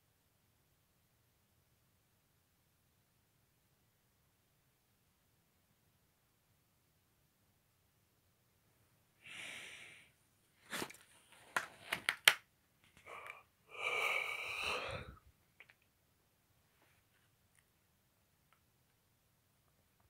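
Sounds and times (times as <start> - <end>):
paper rustling: 10.6 - 12.3.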